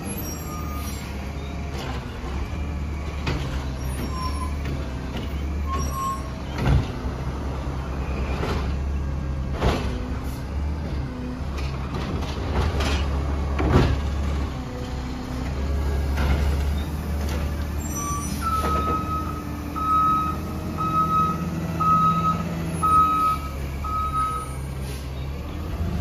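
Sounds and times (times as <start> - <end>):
garbage truck engine humming: 0.0 - 26.0.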